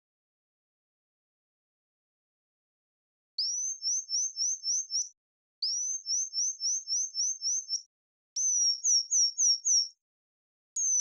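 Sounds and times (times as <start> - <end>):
synthesized bird tweets: 3.4 - 10.0, 10.8 - 11.0.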